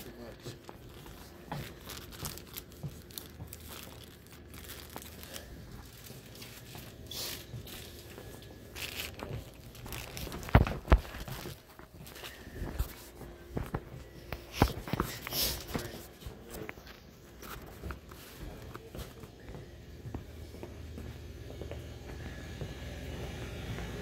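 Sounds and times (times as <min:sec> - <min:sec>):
packaging rustling and crinkling: 0:00.0 - 0:19.1.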